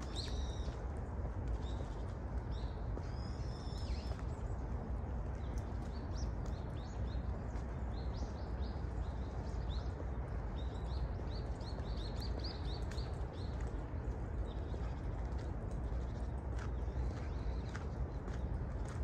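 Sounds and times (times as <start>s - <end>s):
low background rumble: 0.0s - 19.0s
small birds chirping: 0.0s - 19.0s.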